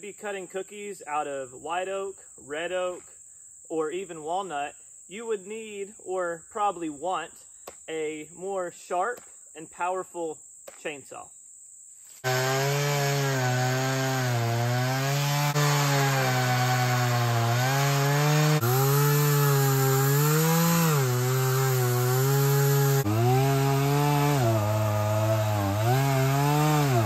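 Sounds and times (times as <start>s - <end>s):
chainsaw cutting a log: 12.2s - 27.0s.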